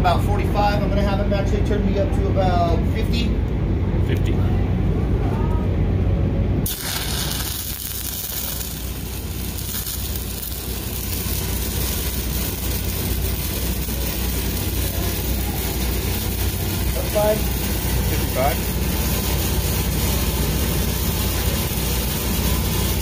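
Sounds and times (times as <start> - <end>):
welding arc hissing: 6.6 - 23.0.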